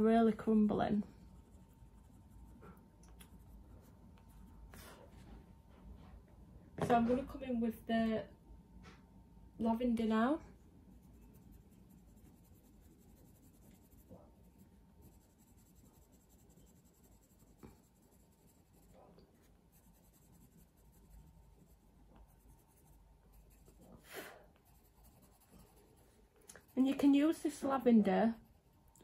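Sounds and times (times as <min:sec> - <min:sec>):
pencil scratching on paper: 0:00.5 - 0:05.3, 0:10.9 - 0:28.9.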